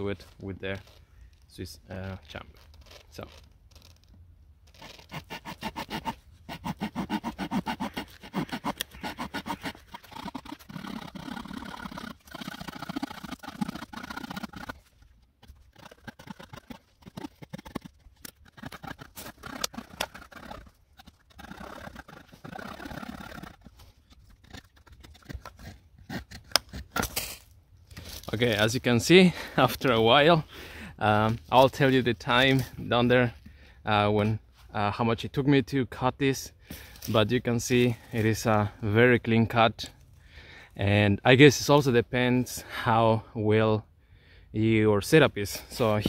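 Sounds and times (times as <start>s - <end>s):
saw cutting through branch: 4.7s - 27.5s.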